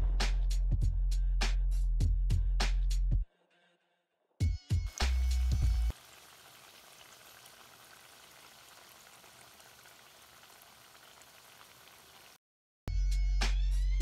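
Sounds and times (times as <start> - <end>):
food deep-frying in hot oil: 4.9 - 12.4.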